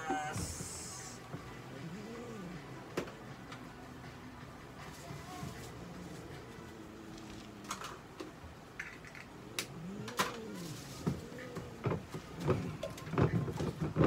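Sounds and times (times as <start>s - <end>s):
cat growling moan: 0.0s - 2.9s, 5.8s - 7.9s, 9.4s - 12.2s.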